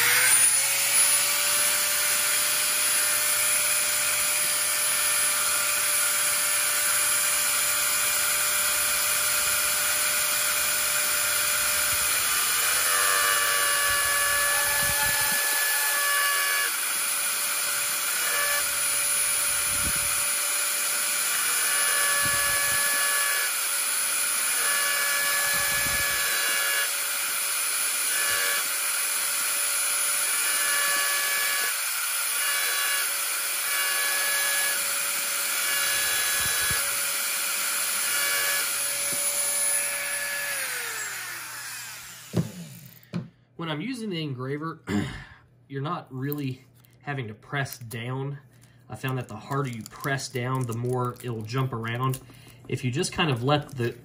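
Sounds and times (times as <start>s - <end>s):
bit grinding metal: 0.0s - 43.0s
engraving pen whining: 0.0s - 43.3s.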